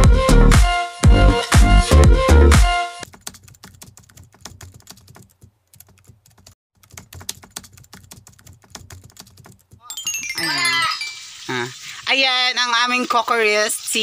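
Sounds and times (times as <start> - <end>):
electronic dance music: 0.0 - 2.9
keyboard typing clicks: 3.1 - 9.8.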